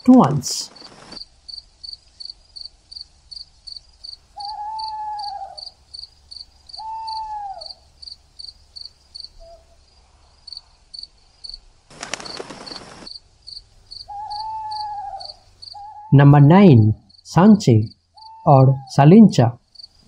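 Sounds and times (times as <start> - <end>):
long arching calls: 0.0 - 1.3, 3.6 - 9.9, 11.4 - 16.4, 17.8 - 19.0
cricket chirping: 0.2 - 20.0.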